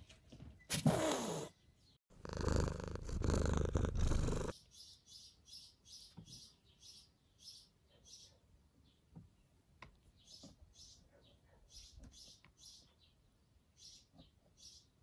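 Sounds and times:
cat purring: 2.1 - 4.6.

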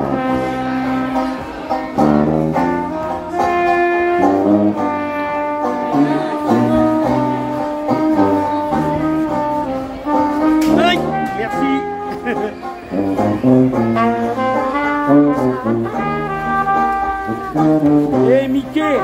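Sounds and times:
strummed banjo: 0.0 - 19.0
trumpet: 0.0 - 19.0
sousaphone bass line: 10.3 - 12.1.

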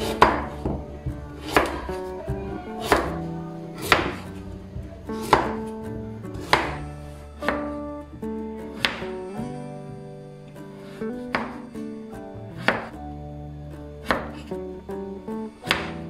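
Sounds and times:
knife chopping on wooden board: 0.0 - 0.8, 1.4 - 1.9, 3.8 - 4.3, 5.1 - 5.7, 6.4 - 6.8, 7.4 - 7.8, 8.8 - 9.1, 11.3 - 11.6, 12.6 - 12.9, 14.0 - 14.4, 15.7 - 16.0
soft background music: 0.0 - 16.0.

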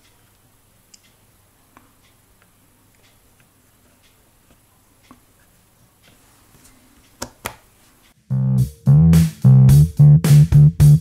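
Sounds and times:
electric bass guitar riff: 8.3 - 11.0.

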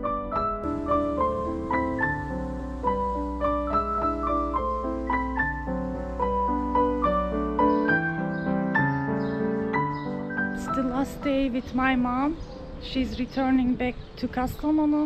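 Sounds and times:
piano music: 0.0 - 14.0
low rumble and hiss: 0.6 - 7.7.

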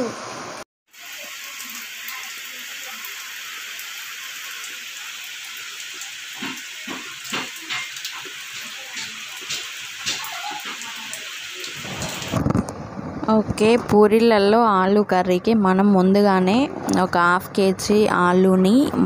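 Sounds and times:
water drips and splashes: 0.9 - 12.5
rain on flooded concrete: 0.9 - 12.8.

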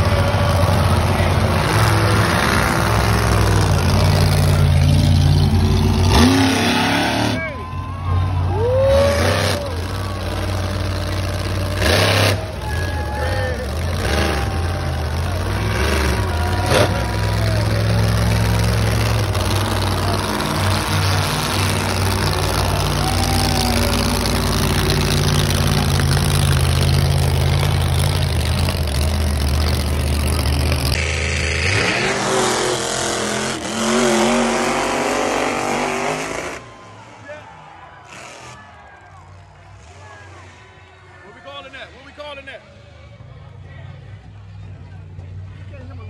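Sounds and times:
voices: 0.0 - 31.0
grandstand crowd noise: 0.0 - 46.0
monster truck engines revving: 0.0 - 46.0.

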